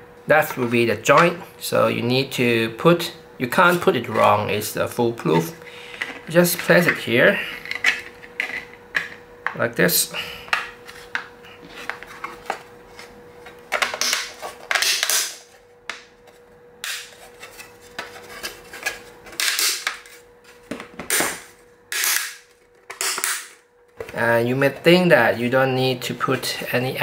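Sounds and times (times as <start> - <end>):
faint steady hum: 0.0 - 27.0
plastic parts clacking and scraping: 7.6 - 9.2.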